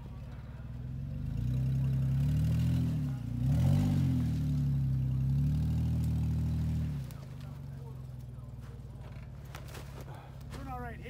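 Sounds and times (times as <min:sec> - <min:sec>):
engine revving under load: 0:00.0 - 0:10.6.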